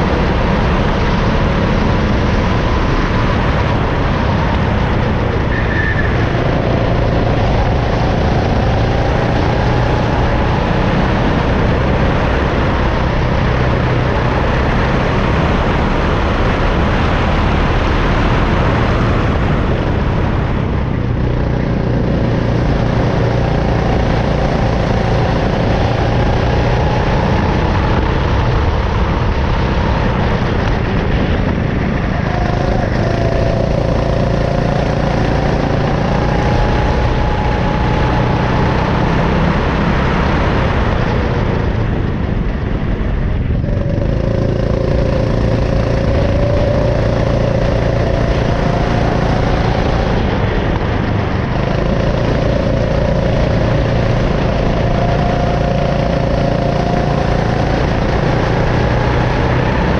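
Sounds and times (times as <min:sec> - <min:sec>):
go-kart engine running hard: 0:00.0 - 0:59.9.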